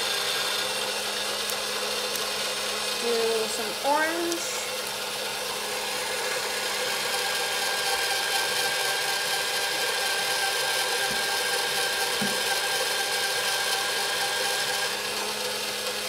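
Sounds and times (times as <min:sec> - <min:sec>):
small motor humming: 0:00.0 - 0:16.0.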